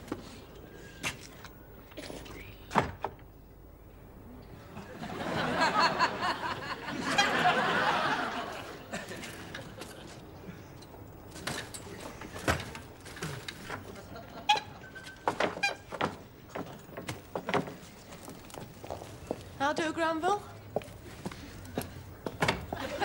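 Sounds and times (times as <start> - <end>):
audience laughing: 4.7 - 10.2, 13.8 - 14.8, 22.7 - 23.0.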